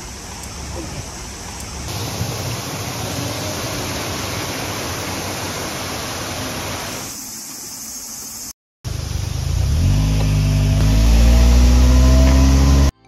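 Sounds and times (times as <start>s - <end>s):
water rushing over weir: 1.9s - 7.1s.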